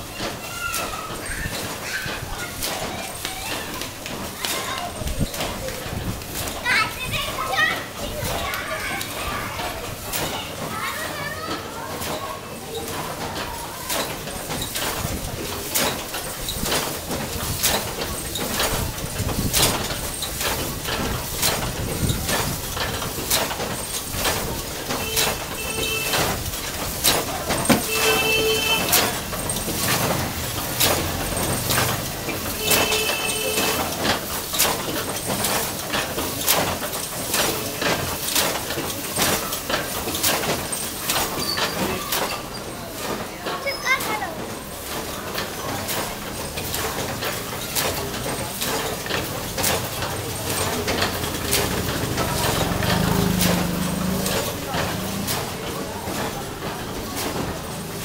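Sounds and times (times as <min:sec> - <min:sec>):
printing presses clattering: 0:00.0 - 0:58.0
brief squeaks: 0:41.3 - 0:42.8.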